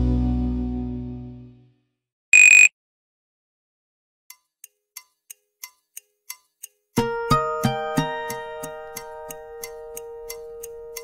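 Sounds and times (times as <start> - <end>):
phone ringtone: 2.4 - 2.7
short high electronic beep: 2.4 - 2.7.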